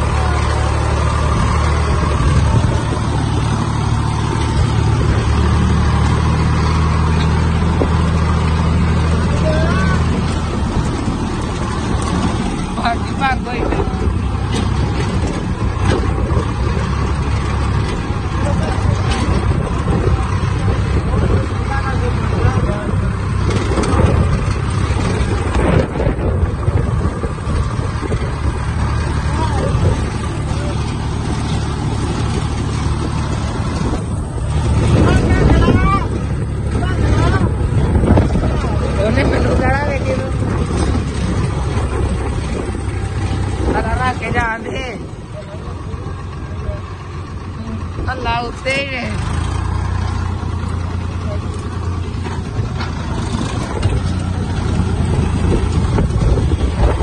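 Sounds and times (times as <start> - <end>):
tractor diesel engine running: 0.0 - 57.0
wind buffeting microphone: 0.0 - 57.0.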